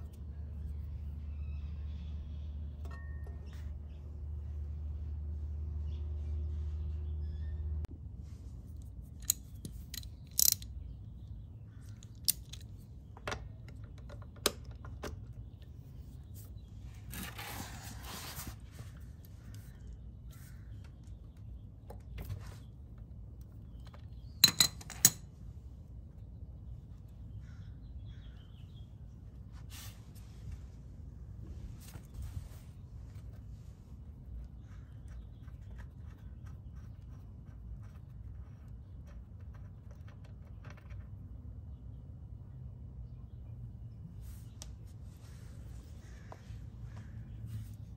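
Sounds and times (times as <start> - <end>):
low steady hum: 0.0 - 47.9
metallic clicks and clinks: 9.2 - 10.7
ratchet clicking: 9.2 - 10.7.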